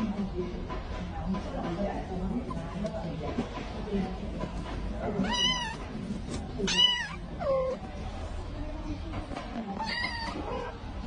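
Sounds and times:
kitten meowing: 6.7 - 7.8.

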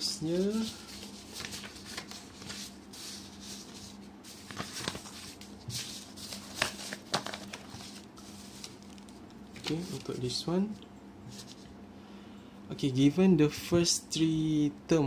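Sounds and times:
faint steady hum: 0.0 - 15.0
paper rustling and crinkling: 0.2 - 10.4, 11.3 - 11.7.

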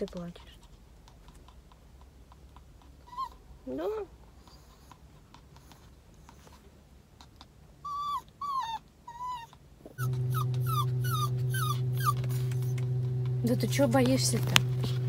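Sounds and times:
small dog whining: 3.0 - 5.0, 7.8 - 13.4
loud low hum: 10.0 - 15.0.

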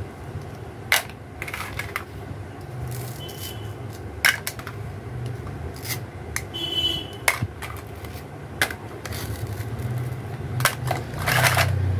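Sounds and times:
plastic toy pieces clacking: 0.9 - 2.1, 2.9 - 4.8, 7.2 - 11.8.

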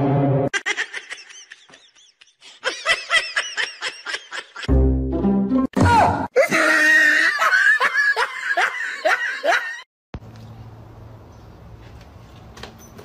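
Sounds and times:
person laughing: 0.5 - 4.7, 6.4 - 9.8.

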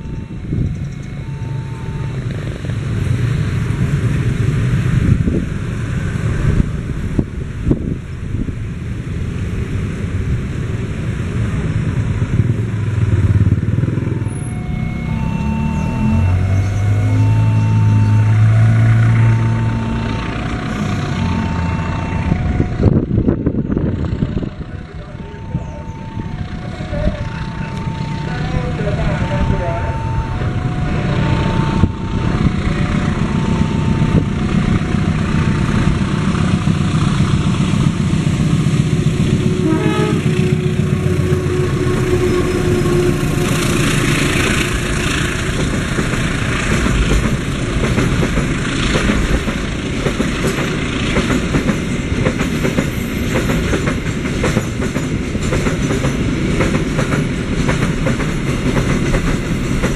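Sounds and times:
locomotive engine rumble: 0.0 - 59.9
locomotive horn blasts: 14.2 - 23.3, 39.3 - 45.3
train wheels clickety-clack: 42.6 - 59.9.

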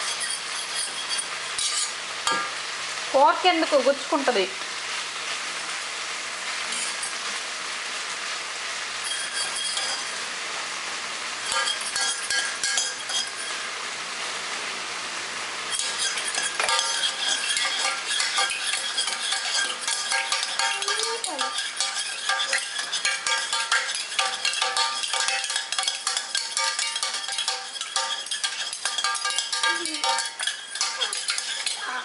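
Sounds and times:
metal spoon clinking in saucepan: 0.0 - 2.5, 9.0 - 10.1, 11.4 - 13.6, 15.7 - 31.9.

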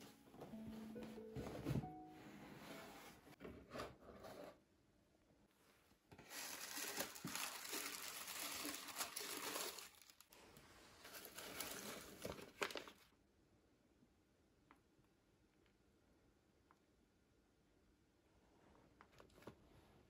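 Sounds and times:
tissue paper crinkling and rustling: 6.1 - 10.4, 11.0 - 13.1.

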